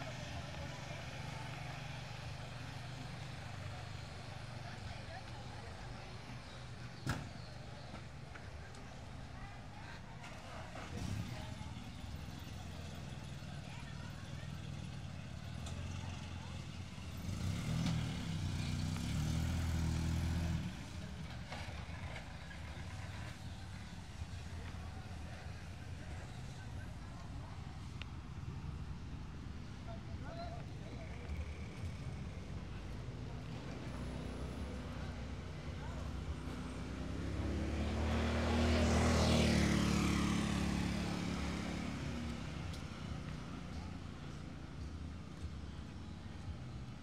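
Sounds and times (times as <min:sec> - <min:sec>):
vehicle engine humming: 0:00.0 - 0:47.0
vehicle passing close by: 0:17.1 - 0:23.0, 0:31.3 - 0:44.1.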